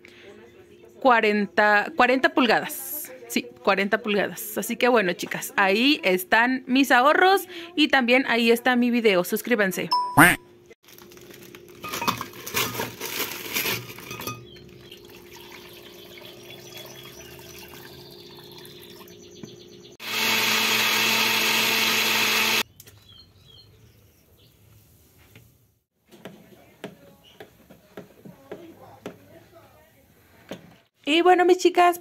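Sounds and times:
kitchenware clinking: 11.8 - 12.8, 13.8 - 14.6
countertop blender running: 20.0 - 22.6.

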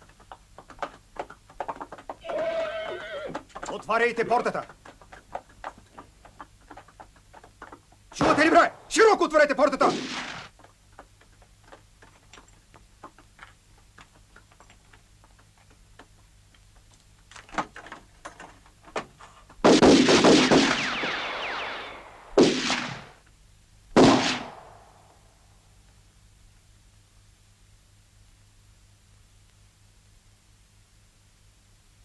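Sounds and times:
single rifle shots: 8.2 - 9.0, 9.9 - 10.5, 19.6 - 23.2, 24.0 - 25.1
rifle fire volley: 8.2 - 10.5, 19.6 - 23.2, 24.0 - 25.1.

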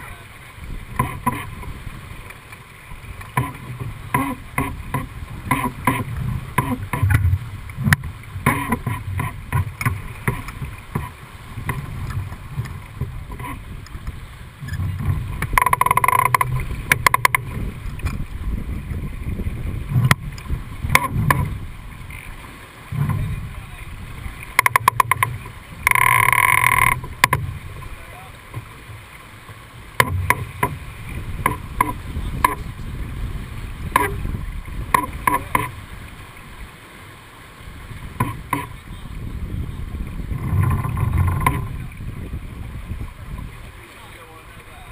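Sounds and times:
water rushing past hull: 0.0 - 44.9
wind buffeting: 2.9 - 26.0, 29.7 - 36.7, 37.6 - 43.8
rapid clicking with ringing tone: 24.6 - 27.4.

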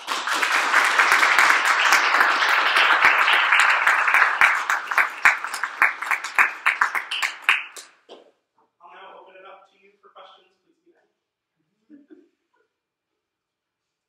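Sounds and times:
audience applauding: 0.0 - 8.0.

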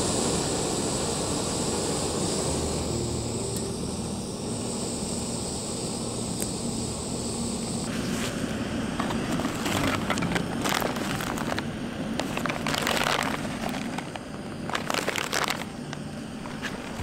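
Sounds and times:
wrappers crinkling and rustling: 9.0 - 17.0.

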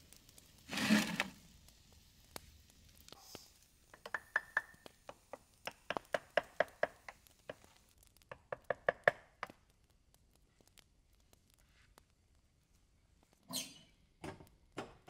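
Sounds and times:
hatchet chopping wood: 4.0 - 7.6, 8.3 - 9.5.

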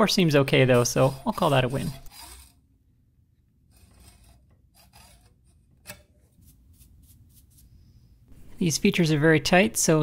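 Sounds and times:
faint hand tool scraping metal: 0.0 - 2.6, 3.7 - 7.8.

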